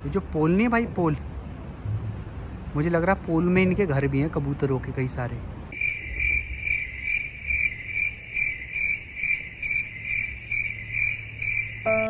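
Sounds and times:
low rumble: 1.7 - 3.2
cricket chirping: 5.7 - 12.0.

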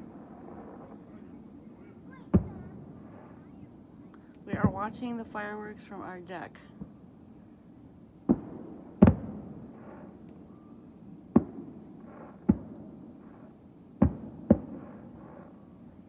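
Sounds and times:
fireworks booming: 0.0 - 7.0, 8.2 - 16.0.

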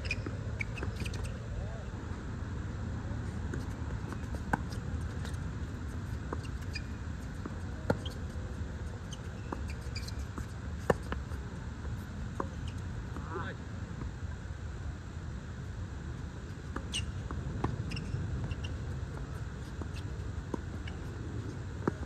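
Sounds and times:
tennis shoes squeaking: 0.0 - 1.6, 3.2 - 12.9, 16.7 - 22.0.

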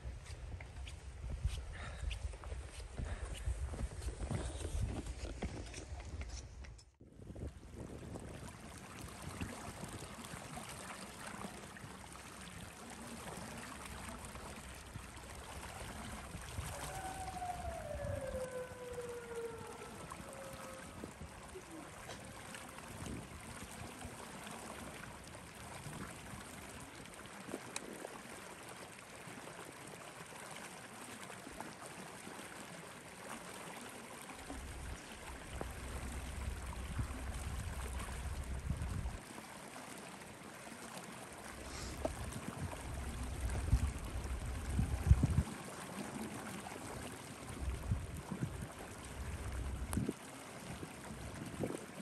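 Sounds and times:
wind gusts rumbling on microphone: 0.0 - 10.8, 14.0 - 24.1, 34.4 - 39.2, 41.5 - 45.6, 46.8 - 52.0
wind hiss: 41.5 - 45.5.

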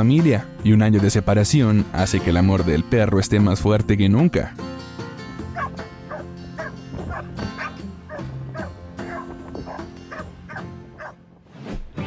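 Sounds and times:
background music: 0.0 - 12.0
dog yipping and whining: 5.6 - 11.2.

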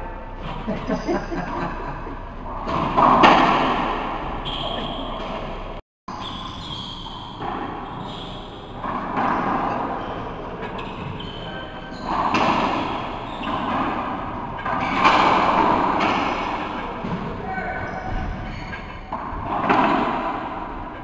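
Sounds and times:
racquetball ball thumping: 2.6 - 5.7, 12.1 - 17.3, 19.1 - 20.9.

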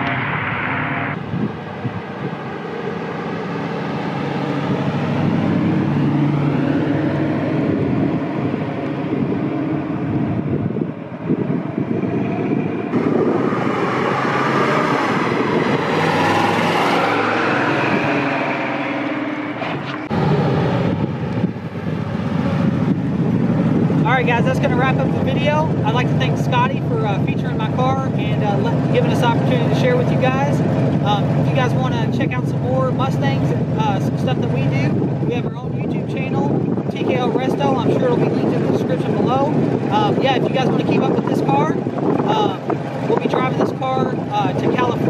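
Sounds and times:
car engine accelerating past: 0.0 - 24.1.

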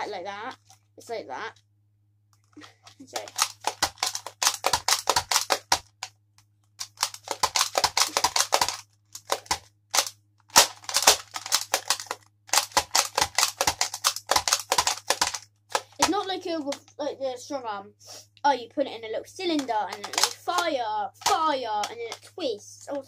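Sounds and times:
toy blaster mechanism clicking: 3.1 - 5.9, 6.8 - 16.8, 19.5 - 22.3.

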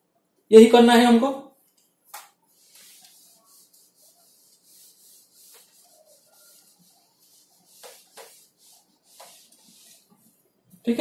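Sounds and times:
cloth wiping whiteboard: 2.2 - 10.5.

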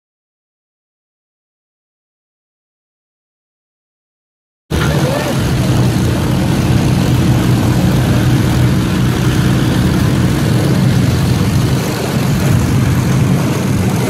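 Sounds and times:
piston aircraft engines idling: 4.7 - 14.0.

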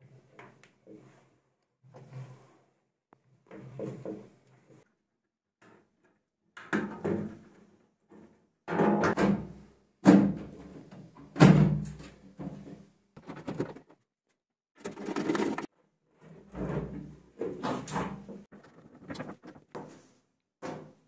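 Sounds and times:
metal and plastic parts clattering: 13.2 - 14.0, 14.8 - 15.7.

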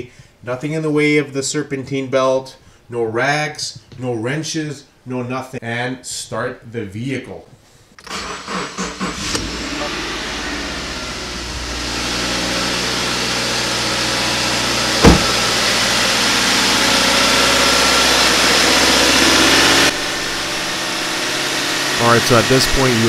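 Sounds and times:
engine starter cranking: 8.0 - 9.6
car engine idling: 9.2 - 23.0
sharp thump: 15.0 - 15.5.

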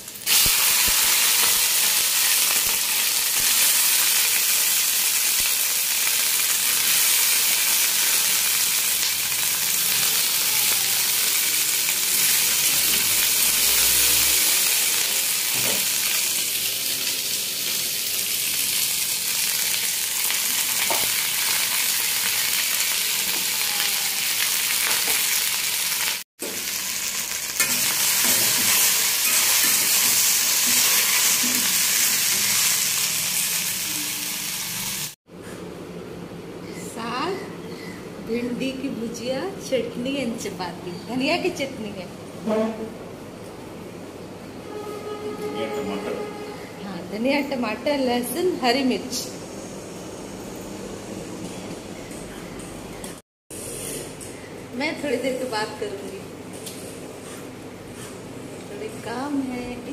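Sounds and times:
okra sizzling in hot oil: 0.0 - 35.2.

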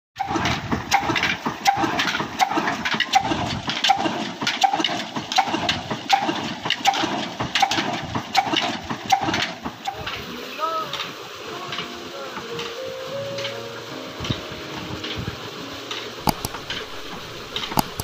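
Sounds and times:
slow single-cylinder engine thumping: 0.2 - 10.2.

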